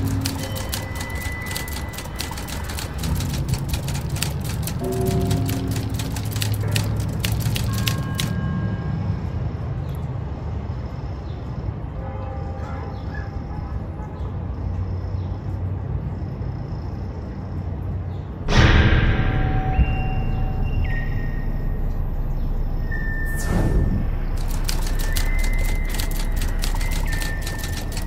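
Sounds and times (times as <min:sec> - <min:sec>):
rapid crackle of clicks: 0:00.0 - 0:08.3, 0:24.4 - 0:28.0
low city rumble: 0:00.0 - 0:28.0.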